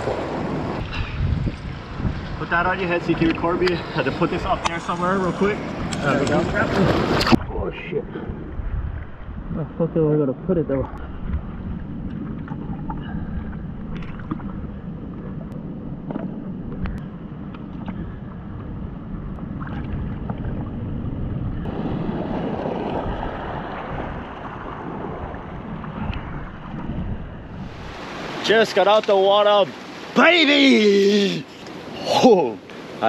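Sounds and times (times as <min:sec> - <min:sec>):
wind rumbling on microphone: 0:00.0 - 0:29.3
surf washing over rocks: 0:21.6 - 0:26.6, 0:27.6 - 0:33.0.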